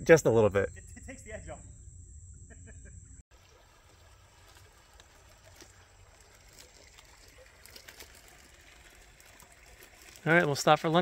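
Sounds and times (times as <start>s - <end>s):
low hum: 0.7s - 3.2s
water trickling and dripping: 3.3s - 11.0s.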